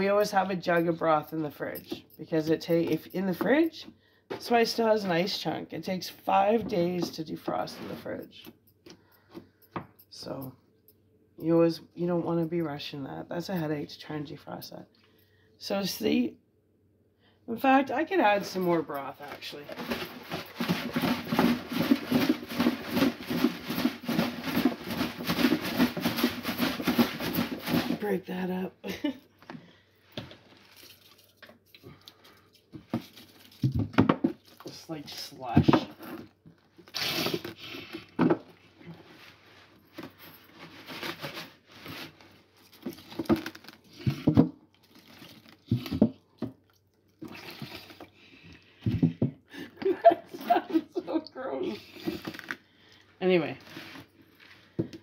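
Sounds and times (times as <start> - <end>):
plastic jug crinkling: 18.3 - 28.3, 30.2 - 32.2, 32.8 - 39.0, 39.7 - 49.2, 49.8 - 55.0
broth sloshing in plastic jug: 42.6 - 48.2.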